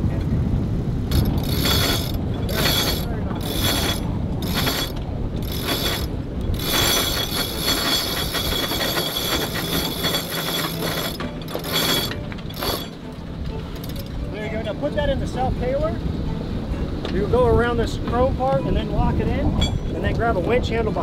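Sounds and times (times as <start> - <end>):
winch ratchet clicking: 1.1 - 14.1.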